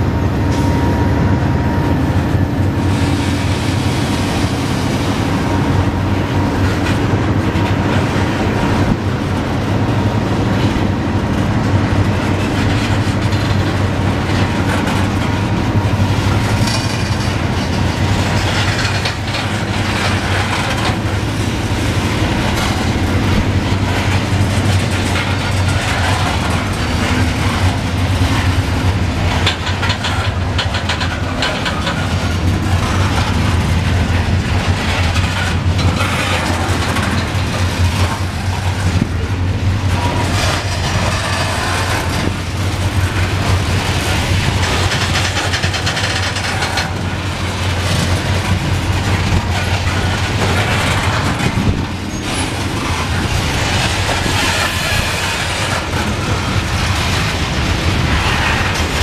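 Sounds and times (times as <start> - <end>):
train cars rumbling on rails: 0.0 - 59.0
wheels and couplings clacking: 4.9 - 59.0.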